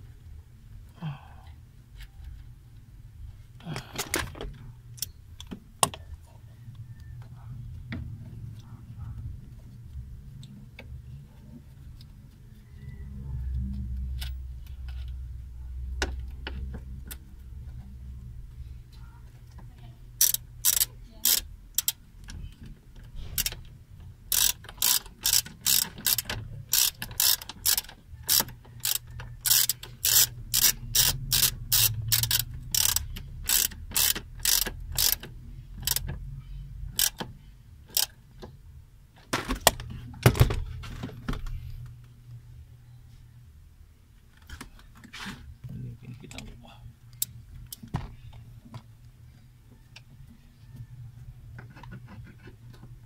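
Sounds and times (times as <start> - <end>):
ratchet tool clicking: 20.2 - 22.0, 23.4 - 23.7, 24.3 - 36.1, 36.9 - 37.3, 37.9 - 38.2.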